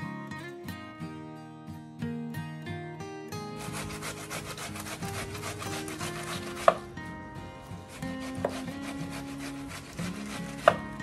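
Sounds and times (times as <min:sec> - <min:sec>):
grating on metal grater: 0:03.6 - 0:07.0, 0:07.6 - 0:11.0.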